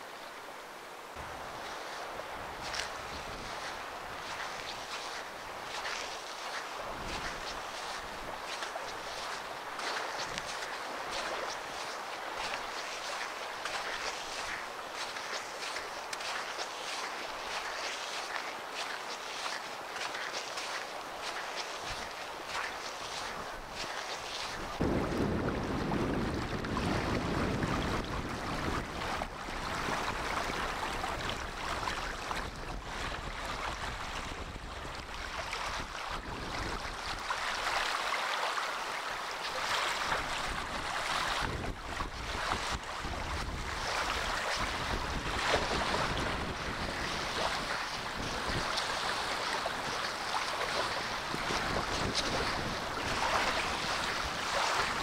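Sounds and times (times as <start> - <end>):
small waves lapping on shore: 0.0 - 55.0
wind buffeting microphone: 1.2 - 4.9, 6.8 - 8.6, 24.4 - 37.3, 40.1 - 55.0.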